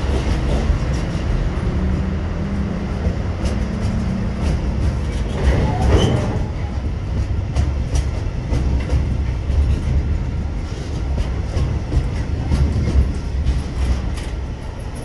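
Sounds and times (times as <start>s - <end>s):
train wheels rumbling on rail: 0.0s - 15.0s
wheels clicking over rail joints: 0.0s - 15.0s
wheel squeal: 5.1s - 6.8s.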